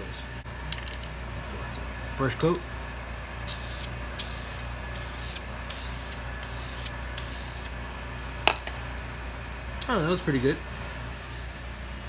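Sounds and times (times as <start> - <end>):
spray paint can hissing: 3.4 - 7.7.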